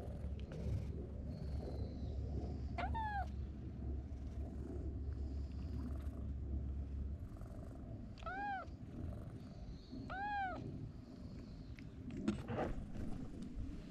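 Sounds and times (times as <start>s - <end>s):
cat meowing: 8.2s - 8.7s, 10.1s - 10.6s.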